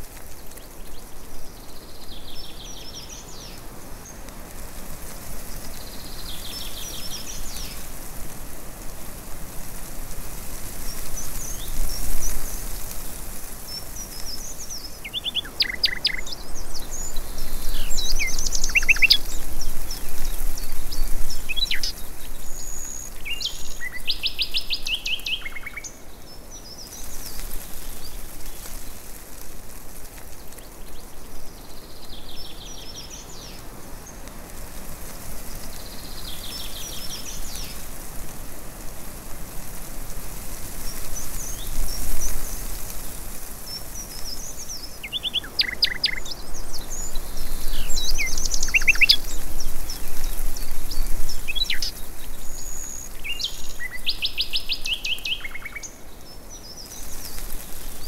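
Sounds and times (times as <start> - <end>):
steady high hiss: 0.0 - 58.0
birds singing: 5.5 - 7.8, 13.6 - 28.7, 35.5 - 37.8, 43.6 - 58.0
fast bird trill: 17.7 - 19.3, 45.1 - 46.3, 47.7 - 49.3.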